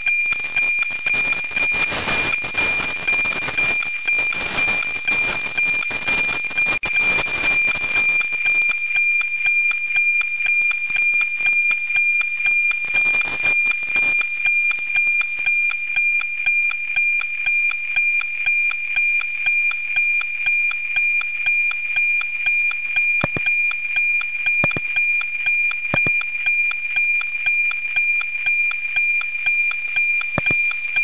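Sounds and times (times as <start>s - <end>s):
satellite signal high tone: 0.0s - 31.0s
sharp clicks: 23.2s - 23.5s, 24.6s - 25.0s, 26.0s - 26.3s, 30.4s - 30.8s.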